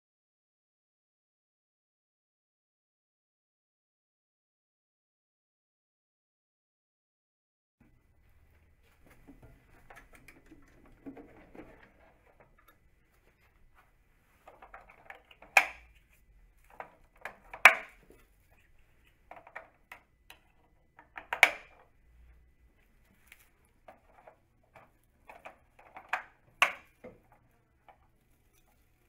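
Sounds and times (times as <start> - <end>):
plastic rustling and tapping: 8.9 - 21.9, 23.0 - 29.0
sharp plastic clicks: 14.5 - 15.9, 19.3 - 21.9.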